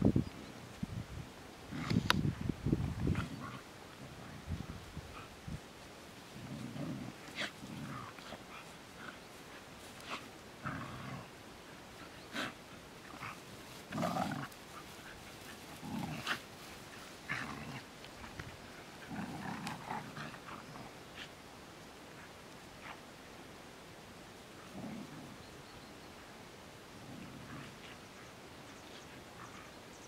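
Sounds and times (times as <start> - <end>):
dogs growling and snarling: 1.7 - 2.2, 2.8 - 5.4, 6.2 - 21.4, 24.5 - 25.6, 26.9 - 29.8.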